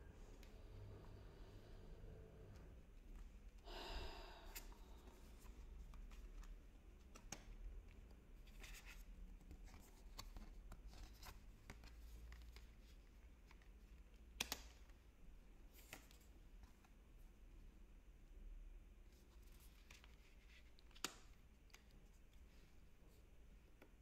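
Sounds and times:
cards being handled: 0:04.6 - 0:15.0, 0:19.3 - 0:22.7.

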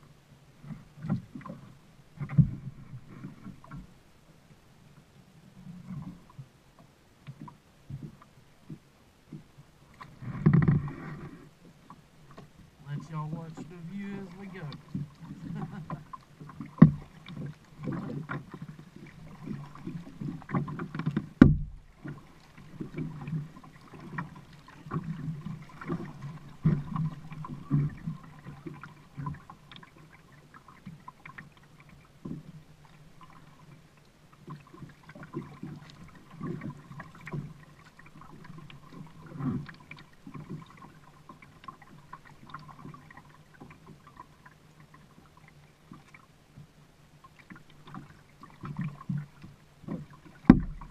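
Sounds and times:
paddle splashing in water: 0:00.0 - 0:50.9
paddle knocking against kayak: 0:06.0 - 0:33.7, 0:47.3 - 0:50.9.

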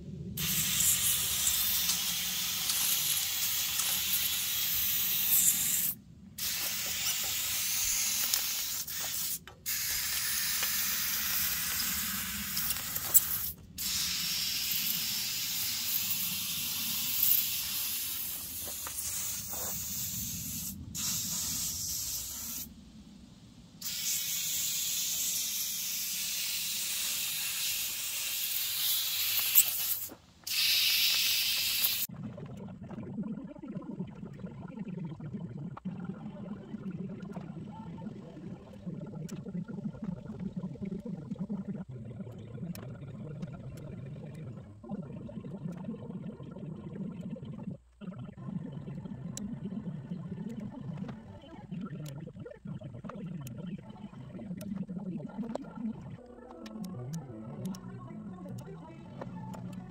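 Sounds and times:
compressed air hissing from blow gun: 0:00.4 - 0:22.7, 0:23.8 - 0:32.1.

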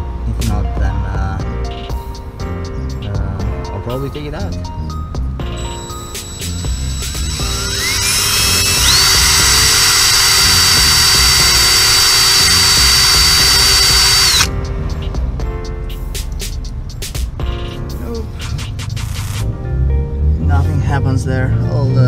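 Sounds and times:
cordless drill whining: 0:05.6 - 0:14.5.

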